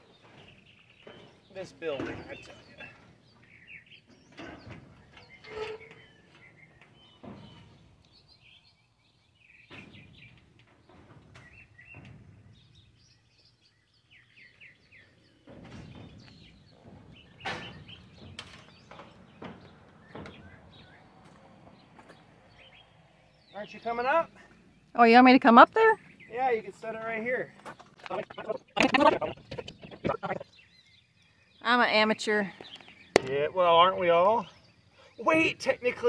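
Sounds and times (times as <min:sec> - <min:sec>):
small birds chirping: 0:00.0 - 0:36.0
knocks and clanks on metal: 0:00.1 - 0:08.5, 0:09.6 - 0:13.2, 0:15.4 - 0:22.7.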